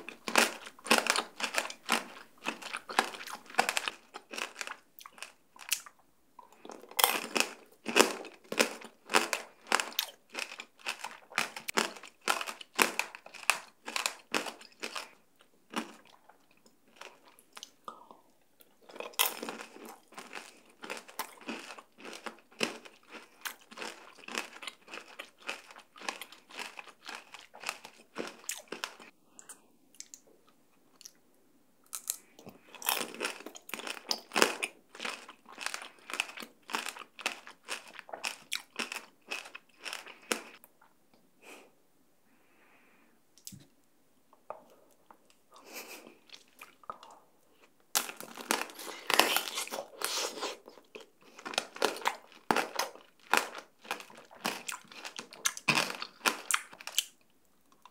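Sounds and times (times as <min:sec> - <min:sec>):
crunching candy shell: 0:00.0 - 0:06.0, 0:06.6 - 0:17.8, 0:32.8 - 0:40.6, 0:47.9 - 0:57.2.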